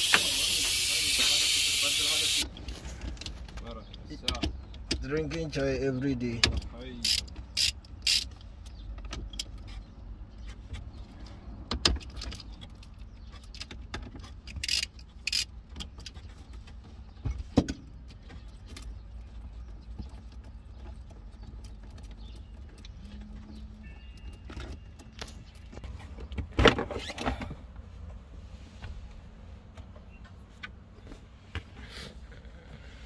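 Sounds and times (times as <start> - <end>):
socket ratchet clicking: 7.0 - 8.3.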